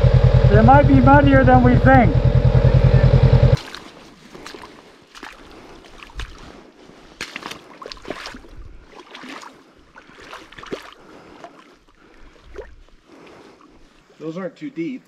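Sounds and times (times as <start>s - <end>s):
squelching and splashing in mud: 3.6s - 14.2s.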